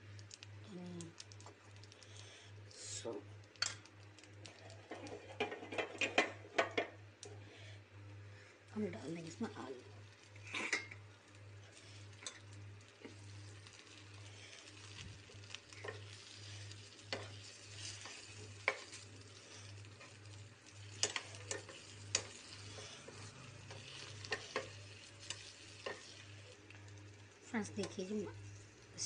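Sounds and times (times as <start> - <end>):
potatoes sizzling in hot oil: 8.7 - 29.0.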